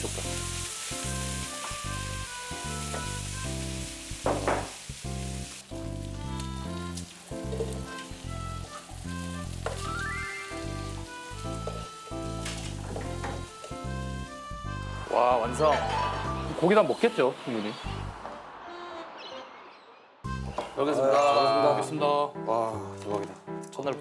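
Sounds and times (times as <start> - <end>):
food sizzling in a pan: 0.0 - 18.2
upbeat background music: 0.0 - 24.0.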